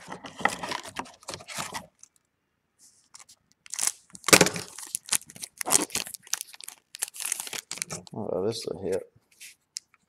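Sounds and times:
paper wrappers crackling and tearing: 3.1 - 8.2.

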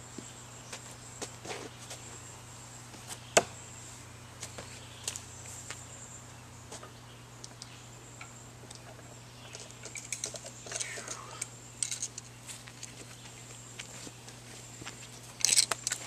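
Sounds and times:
high insect buzz: 0.0 - 12.3.

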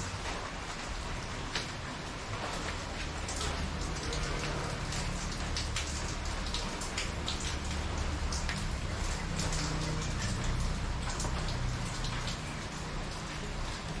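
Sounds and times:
raindrops splashing: 0.0 - 14.0
steady rain falling: 0.0 - 14.0.

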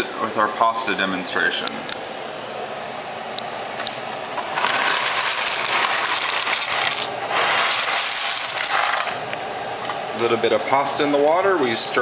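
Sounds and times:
water boiling in a pot: 4.1 - 10.3.

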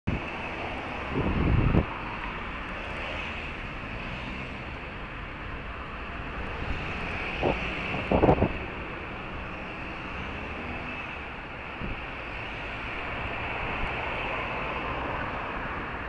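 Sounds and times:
wind on microphone: 0.1 - 2.0, 6.4 - 9.0, 11.4 - 12.2
road traffic rushing: 0.1 - 16.0.

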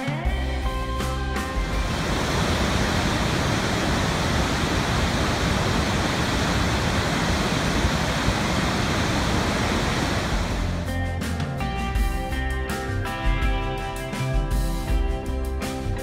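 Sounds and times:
waterfall rushing: 1.6 - 10.8.

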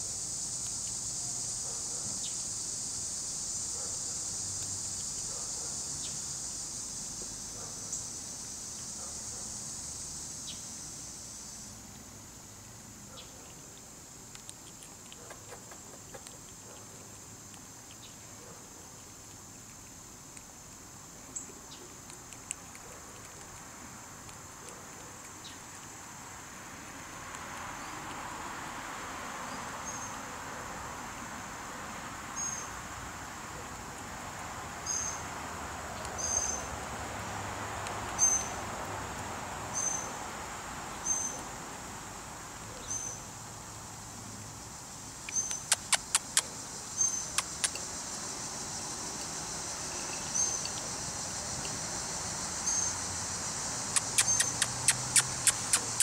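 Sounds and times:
car passing: 26.3 - 44.7, 47.3 - 56.0
sharp clicks: 45.2 - 46.5, 47.3 - 47.8, 53.9 - 56.0.

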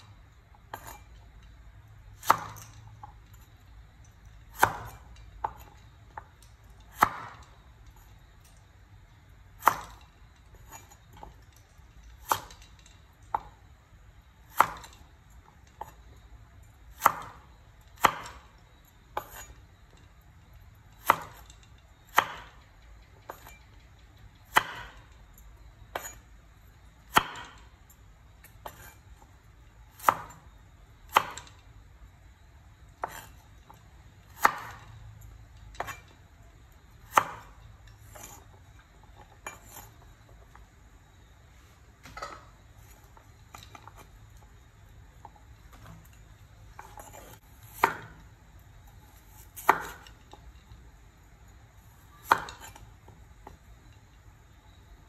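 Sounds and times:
knife chopping on wooden board: 0.7 - 1.1, 2.2 - 2.8, 4.5 - 5.8, 6.9 - 7.5, 9.6 - 11.0, 12.2 - 12.6, 14.5 - 15.0, 16.9 - 18.5, 19.2 - 19.6, 21.0 - 21.5, 22.1 - 22.6, 24.5 - 25.0, 25.9 - 26.2, 27.1 - 27.6, 28.6 - 29.0, 29.9 - 30.4, 31.1 - 31.6, 33.0 - 33.4, 34.3 - 34.9, 35.8 - 36.1, 37.0 - 38.5, 46.8 - 48.2, 49.2 - 50.2, 52.2 - 52.8.

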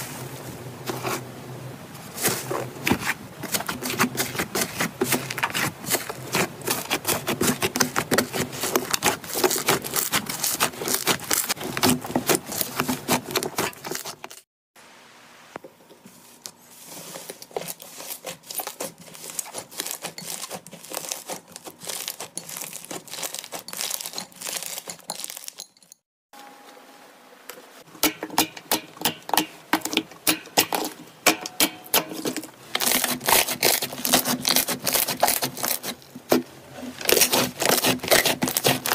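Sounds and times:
paper crinkling: 2.2 - 14.4, 16.0 - 25.7, 32.2 - 38.9
slime crackling and popping: 5.4 - 12.8, 17.5 - 25.6.

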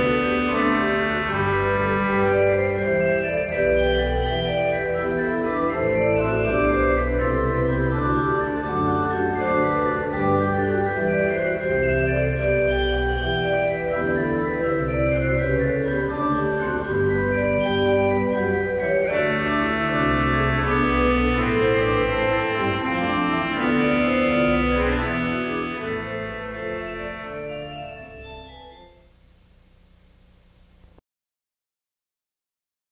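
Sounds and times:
organ music: 0.0 - 29.5.

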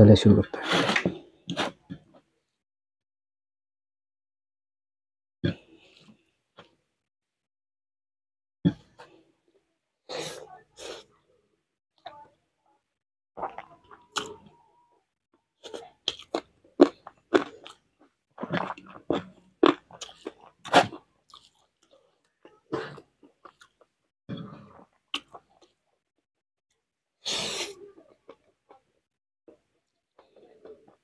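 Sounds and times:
person chewing and crunching food: 13.4 - 14.7, 15.6 - 26.1, 27.9 - 31.0.

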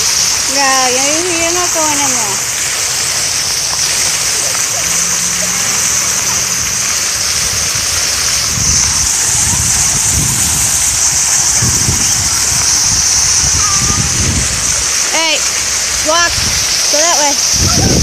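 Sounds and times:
fountain splashing into basin: 0.0 - 18.0
low rumbles: 5.1 - 18.0.

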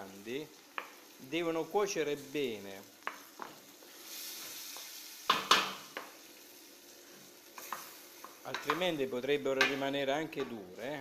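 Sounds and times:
food sizzling in a pan: 0.0 - 11.0
spoon knocking against pan: 5.3 - 6.1.

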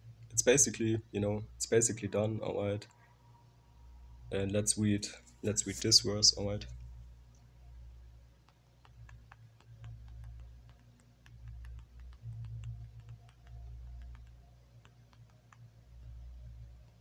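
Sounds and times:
phone keyboard tapping clicks: 8.4 - 15.7.

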